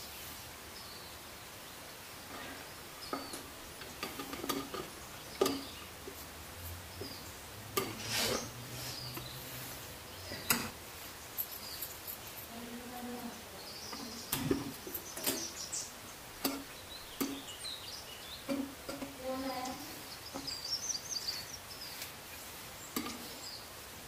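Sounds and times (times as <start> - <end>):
metal spoon scraping a steel pot: 7.8 - 9.0.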